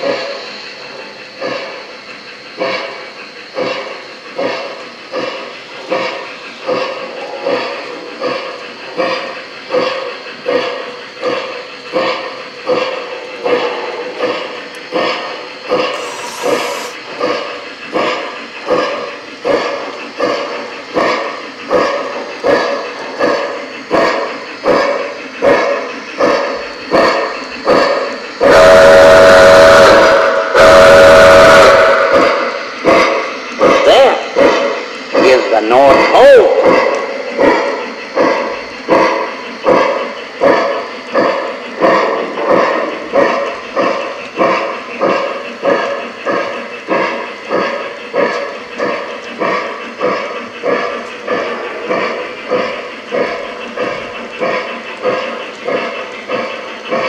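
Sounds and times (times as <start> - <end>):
steam locomotive chuffs: 0.0 - 57.0
steam whistle blasts: 28.4 - 32.5.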